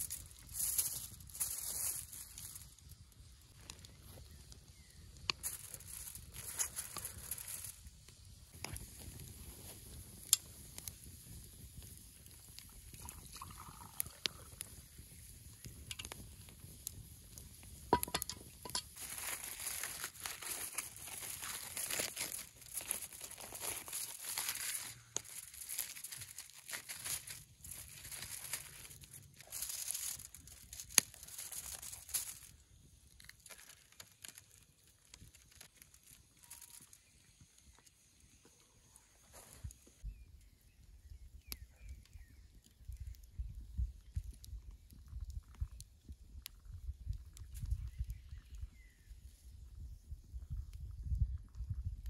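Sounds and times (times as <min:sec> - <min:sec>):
aluminium foil crinkling: 0:00.0 - 0:14.6, 0:17.9 - 0:38.1.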